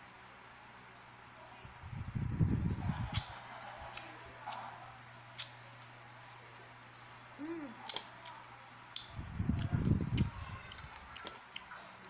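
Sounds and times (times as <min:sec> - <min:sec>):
wet mouth clicks and smacks: 0:05.4 - 0:05.6
person humming: 0:07.4 - 0:07.8.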